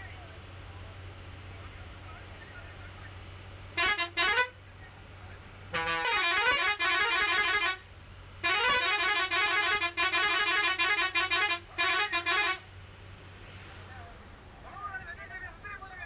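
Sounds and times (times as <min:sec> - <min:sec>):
low engine hum: 0:00.0 - 0:16.0
bus air horn blasts: 0:03.7 - 0:04.6, 0:05.7 - 0:12.7.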